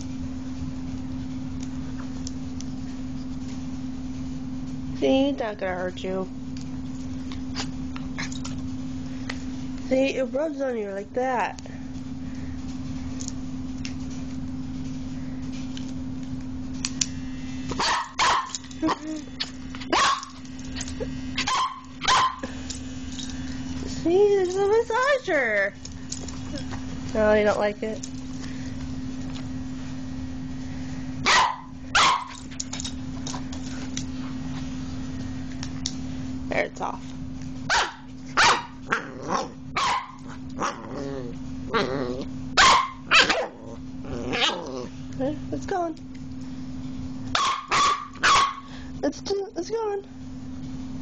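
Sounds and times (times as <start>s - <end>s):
electric massager vibrating hum: 0.0s - 51.0s
puppy barking: 17.8s - 19.1s, 19.8s - 20.4s, 21.4s - 22.5s, 31.2s - 32.4s, 37.7s - 40.8s, 42.6s - 43.6s, 47.3s - 48.7s.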